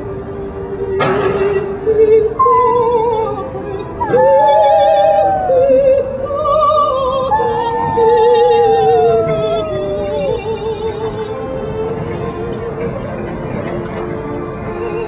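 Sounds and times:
person singing operatically: 0:00.0 - 0:12.9
dog howling: 0:04.0 - 0:06.2, 0:07.2 - 0:10.4.

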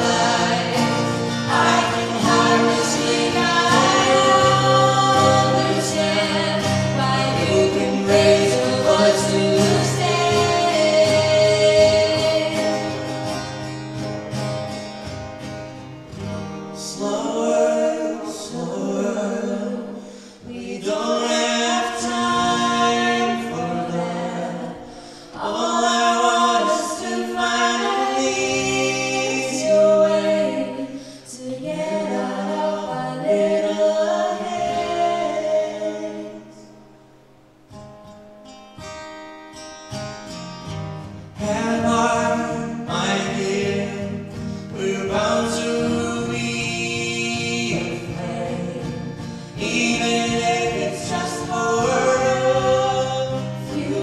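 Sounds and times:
acoustic guitars: 0:00.0 - 0:54.0
woman singing: 0:01.5 - 0:12.9, 0:20.4 - 0:24.7, 0:25.4 - 0:36.5
man singing: 0:07.0 - 0:12.7, 0:16.8 - 0:20.0, 0:20.6 - 0:30.4, 0:41.4 - 0:54.0.

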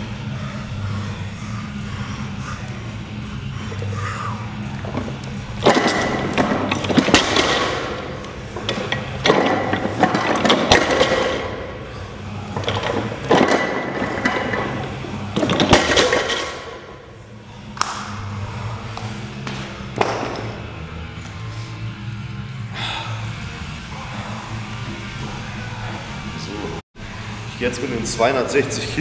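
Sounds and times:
steady low hum: 0:00.0 - 0:29.0
barbell plates clanking on floor: 0:05.6 - 0:11.6, 0:12.6 - 0:16.7.

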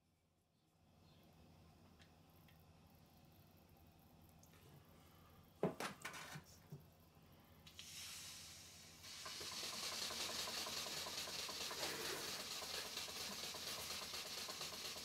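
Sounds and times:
steam engine hissing and beating: 0:07.8 - 0:15.0.

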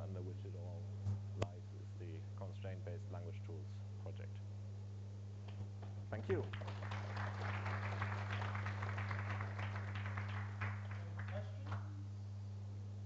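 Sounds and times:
steady low hum: 0:00.0 - 0:13.0
audience applauding: 0:06.2 - 0:11.9.

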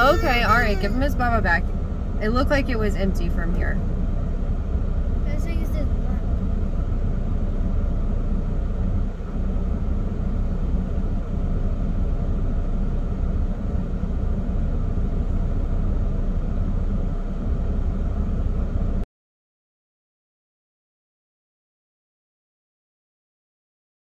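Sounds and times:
car cabin road and engine rumble: 0:00.0 - 0:19.0.

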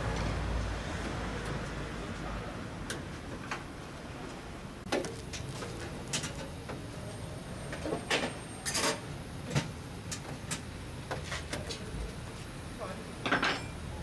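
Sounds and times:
metal parts clinking on sheet metal: 0:13.2 - 0:13.8.

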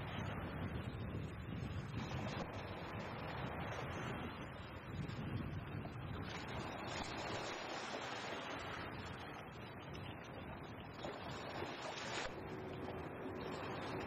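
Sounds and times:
wind on microphone: 0:00.0 - 0:14.0
sea waves washing against rocks: 0:06.2 - 0:09.1.

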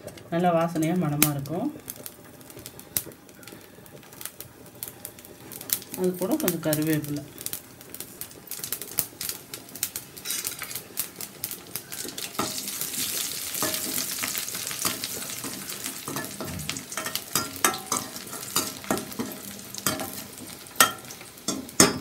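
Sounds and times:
food sizzling in hot oil: 0:00.0 - 0:22.0
metal spoon scraping a pan: 0:10.2 - 0:10.8, 0:11.9 - 0:22.0.

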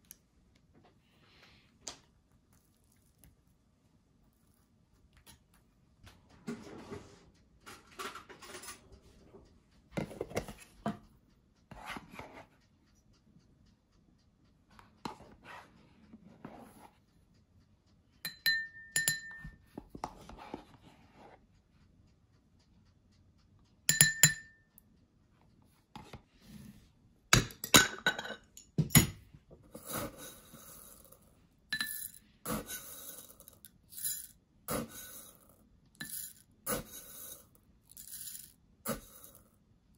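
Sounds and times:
glass clinking and ringing: 0:18.3 - 0:19.6, 0:23.9 - 0:24.6, 0:31.8 - 0:32.2
cereal rattling into glass: 0:36.0 - 0:36.4, 0:37.0 - 0:39.4.

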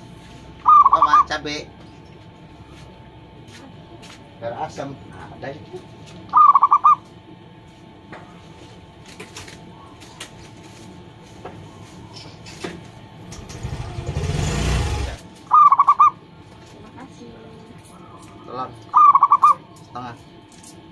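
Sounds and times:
dove cooing: 0:00.6 - 0:01.3, 0:06.3 - 0:07.1, 0:15.5 - 0:16.2, 0:18.0 - 0:19.7
passing vehicle engine rumble: 0:13.4 - 0:15.2.

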